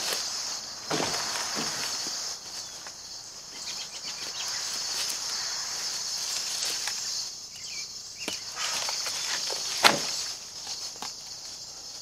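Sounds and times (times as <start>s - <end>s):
insects buzzing: 0.0s - 12.0s.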